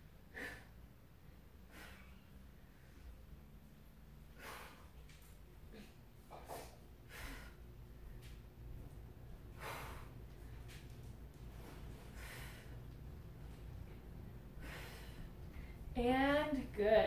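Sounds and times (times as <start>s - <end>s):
low steady hum: 0.0s - 17.0s
woman breathing hard: 0.2s - 3.4s, 4.2s - 8.4s, 9.5s - 10.8s, 11.6s - 13.7s, 14.4s - 15.9s.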